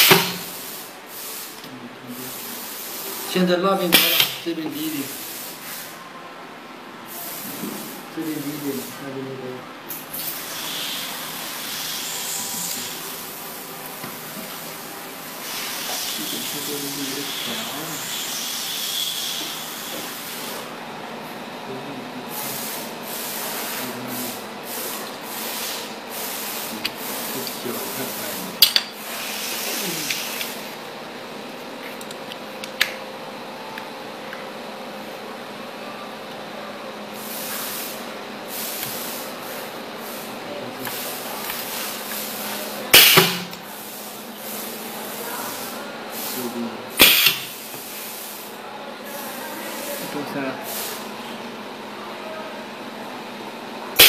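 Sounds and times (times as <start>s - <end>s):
compressed air hissing: 0.0s - 6.0s, 7.1s - 9.1s, 9.9s - 20.7s, 22.3s - 30.8s, 37.2s - 48.6s, 49.2s - 51.1s.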